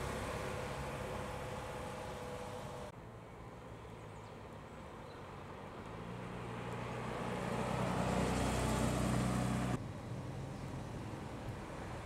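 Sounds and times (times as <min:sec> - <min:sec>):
car engine driving past: 0:05.8 - 0:10.9.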